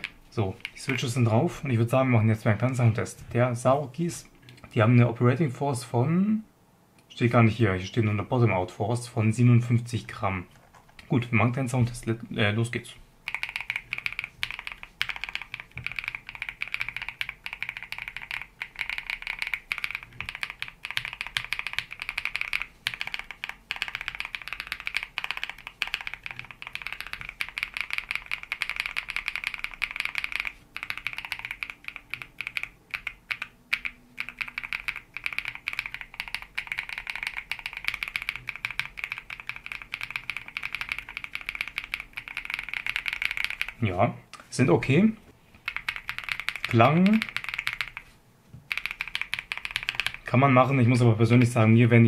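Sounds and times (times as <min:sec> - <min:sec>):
mechanical keyboard typing: 0:00.0 - 0:01.2, 0:13.2 - 0:43.8, 0:45.6 - 0:48.1, 0:48.7 - 0:50.4.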